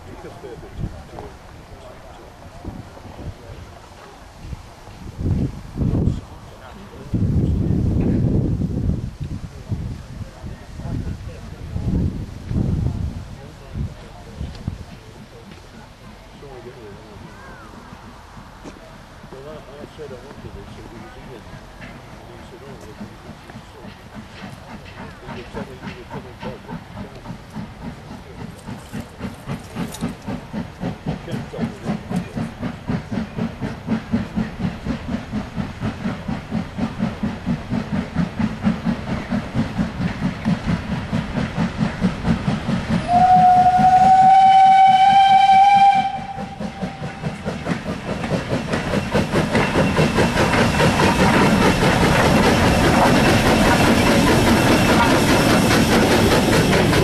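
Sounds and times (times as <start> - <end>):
hiss of steam: 0.0 - 57.0
rumble of train wheels: 0.0 - 57.0
steam locomotive exhaust beating: 0.0 - 57.0
steam whistle blast: 43.0 - 47.2.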